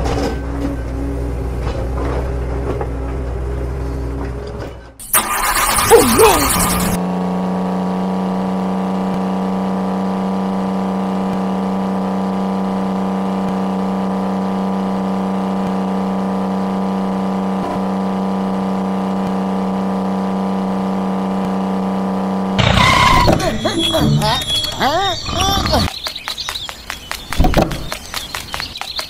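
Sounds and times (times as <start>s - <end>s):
small motor humming: 5.4s - 7.0s.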